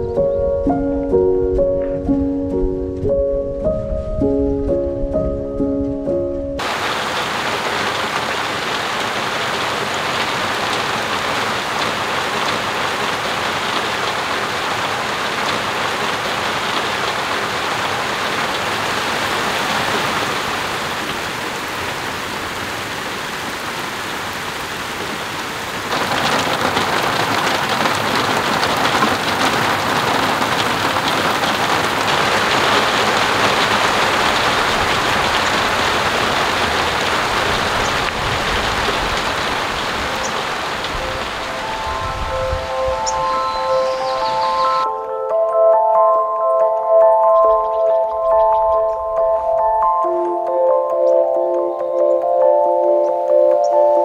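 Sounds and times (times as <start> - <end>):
steady rain falling: 6.6 - 44.9.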